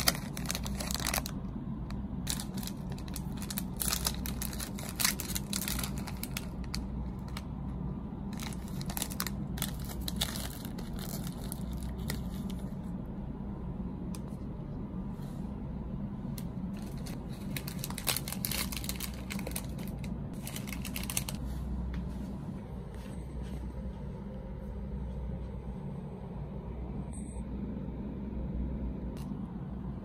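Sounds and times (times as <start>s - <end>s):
snack wrapper crinkling: 0.0s - 1.4s, 2.3s - 7.4s, 8.4s - 12.6s, 16.8s - 21.4s
steady low hum: 0.0s - 30.0s.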